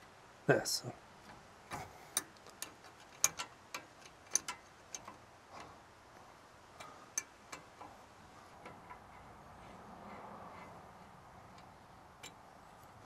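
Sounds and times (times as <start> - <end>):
socket ratchet clicking: 2.1 - 5.7.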